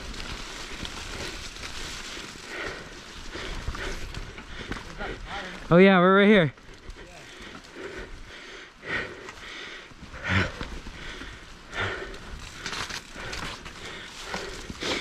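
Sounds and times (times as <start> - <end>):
person breathing hard: 0.5 - 5.6, 6.6 - 15.0.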